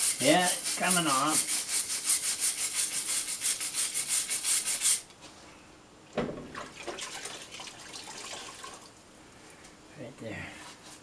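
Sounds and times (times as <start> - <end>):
wire brush scrubbing stone: 0.0 - 5.0
single thump: 6.2 - 6.6.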